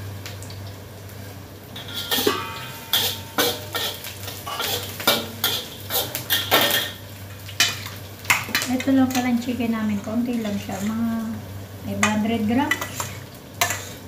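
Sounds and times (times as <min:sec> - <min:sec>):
metal spatula scraping a wok: 0:01.8 - 0:07.0, 0:12.0 - 0:14.0.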